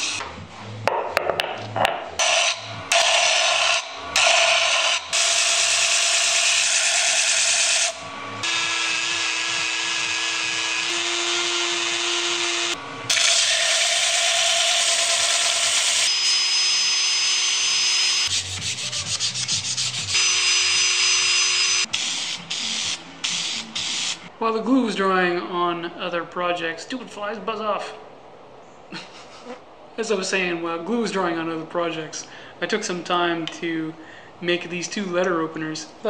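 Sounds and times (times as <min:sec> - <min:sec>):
motor hum: 0:01.7 - 0:24.2
hand sanding strokes: 0:18.3 - 0:20.2
wood sanding on spinning disc: 0:18.3 - 0:20.3.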